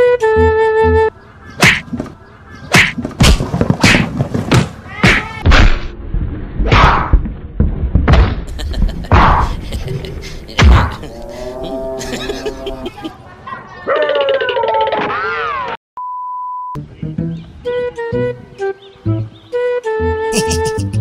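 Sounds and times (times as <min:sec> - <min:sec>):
sharp thuds and whacks: 0:01.6 - 0:02.1, 0:02.7 - 0:05.9, 0:06.6 - 0:08.5, 0:09.1 - 0:09.5, 0:10.6 - 0:11.0.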